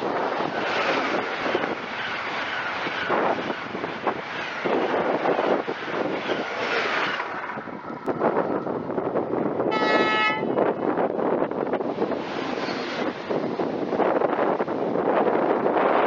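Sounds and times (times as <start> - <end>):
high-speed train rushing past: 0.0 - 16.0
wind buffeting microphone: 0.0 - 16.0
train horn blast: 9.7 - 10.6.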